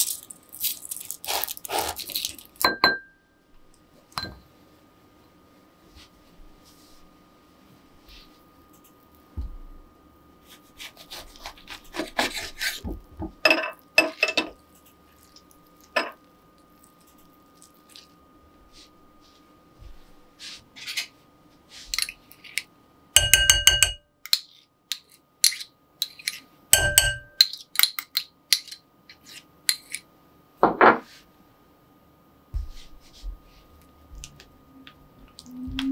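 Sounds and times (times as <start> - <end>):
glass bowls and utensils clinking: 2.6 - 3.2, 4.1 - 4.4, 13.4 - 14.6, 15.9 - 16.2, 26.8 - 27.6.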